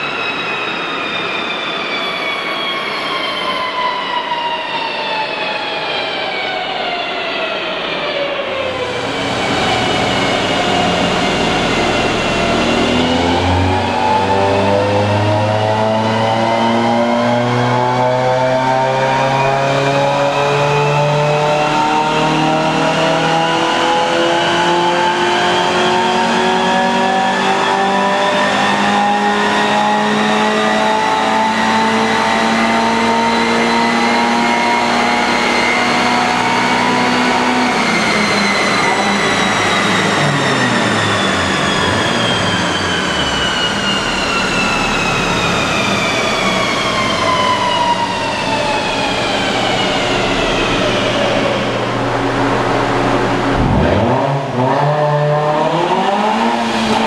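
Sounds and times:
whine of rollers and tyres: 0.0 - 57.0
car engine revving under load: 49.1 - 57.0.

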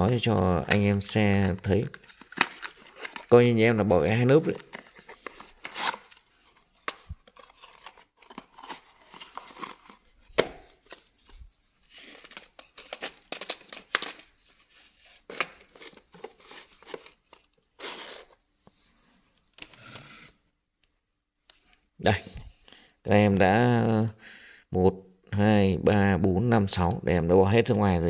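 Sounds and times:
cardboard packaging rustling: 0.6 - 18.5.

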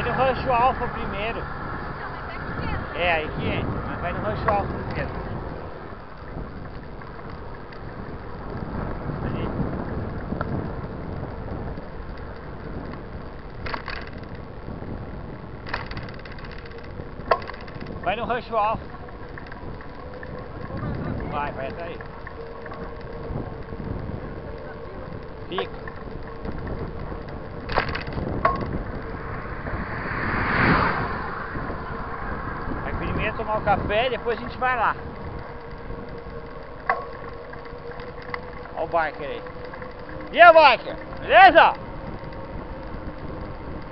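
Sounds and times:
bike tyres rumbling on asphalt: 0.0 - 43.9
wind rush on microphone: 0.0 - 43.9
short clicks from bike: 10.2 - 14.5, 15.6 - 18.0, 24.4 - 29.1.

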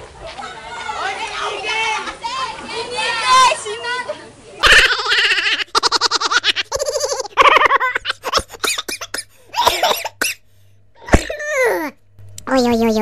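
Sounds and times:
high-pitched laughter: 4.6 - 10.0.

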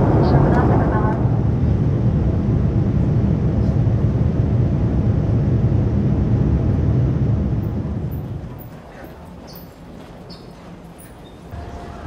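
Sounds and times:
airliner cabin engine rumble: 0.0 - 12.0.

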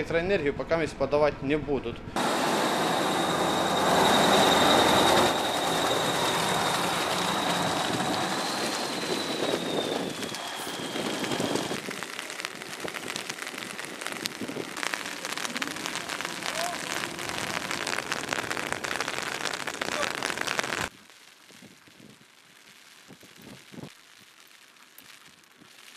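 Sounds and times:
truck driving through mud: 2.2 - 11.7
rain pattering: 2.2 - 20.9.

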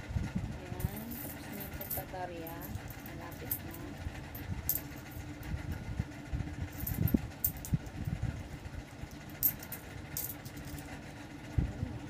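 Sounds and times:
low rumbling hum: 0.0 - 12.0
coins clinking: 0.8 - 5.1, 9.3 - 10.9.

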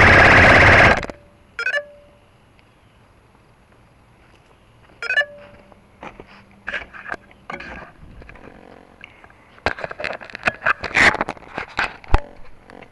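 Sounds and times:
short electronic beep: 1.1 - 2.2, 5.0 - 5.7
handling clicks and scrapes: 5.4 - 12.9.

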